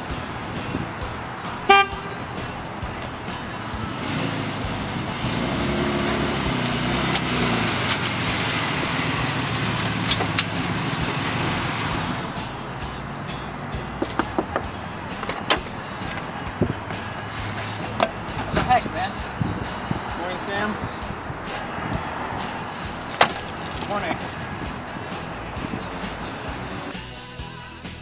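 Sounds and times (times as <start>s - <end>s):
car engine and tyres driving slowly: 0.0s - 27.0s
car horn toot: 1.6s - 2.4s, 15.2s - 26.9s.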